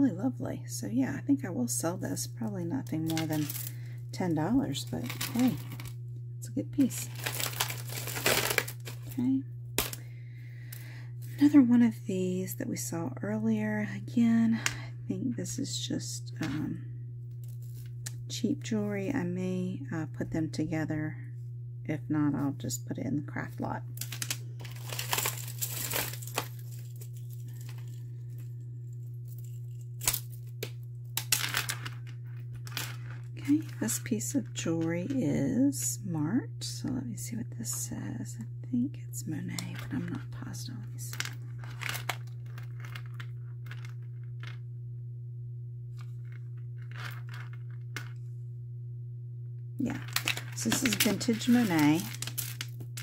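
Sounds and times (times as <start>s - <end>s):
steady low hum: 0.0s - 53.0s
metal necklace clinking: 3.1s - 3.7s, 24.0s - 28.0s, 49.8s - 53.0s
plastic bag crinkling: 3.1s - 3.8s, 4.8s - 5.9s, 6.9s - 10.0s, 24.0s - 33.9s, 41.1s - 44.0s, 49.8s - 53.0s.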